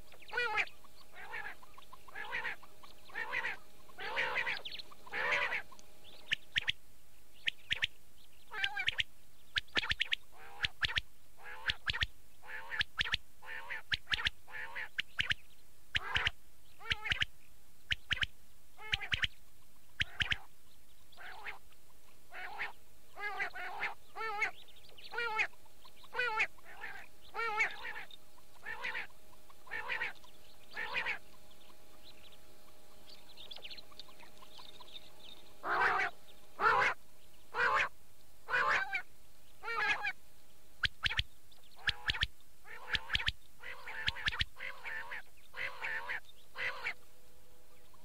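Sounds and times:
recorded quail calls: 0.0s - 6.8s, 7.4s - 20.5s, 21.1s - 40.2s, 40.8s - 47.1s
faint steady hum: 0.0s - 48.0s.

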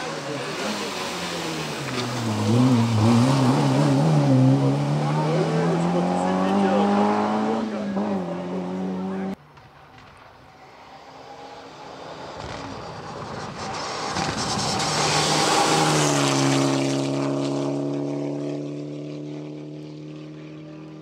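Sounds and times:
rally car passing at full throttle: 0.0s - 21.0s.

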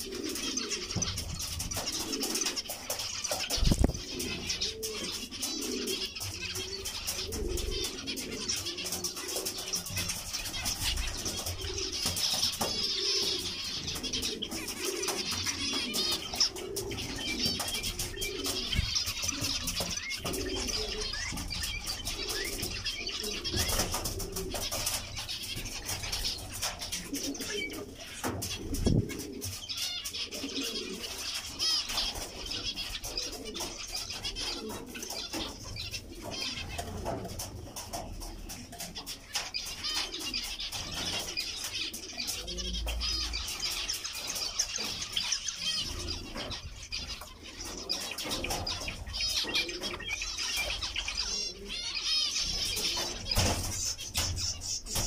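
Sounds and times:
finches chirping: 39.0s - 55.0s.

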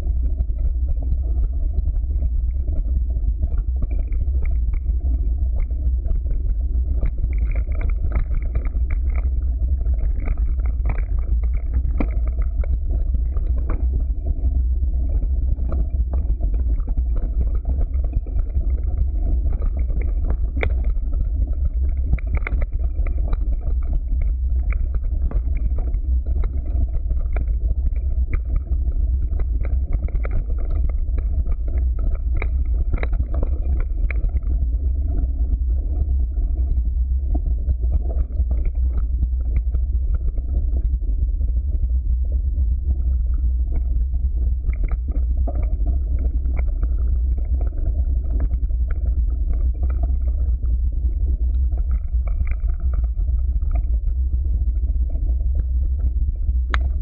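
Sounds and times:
wind and tyre rumble: 0.0s - 0.9s.

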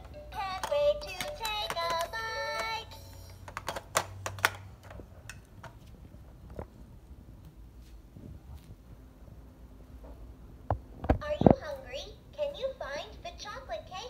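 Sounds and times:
toy playing synthetic tune: 0.0s - 3.5s
plastic toy cups clicking: 0.0s - 5.8s.

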